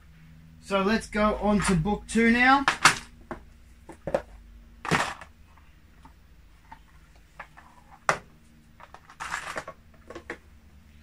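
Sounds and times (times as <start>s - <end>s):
paper rustle: 8.9s - 9.7s.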